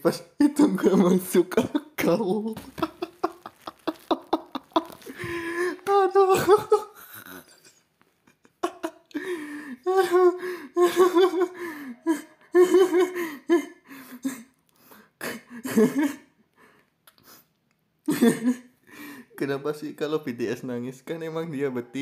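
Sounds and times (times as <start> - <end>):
man laughing: 0.6 - 14.4, 15.2 - 16.2, 18.1 - 18.6.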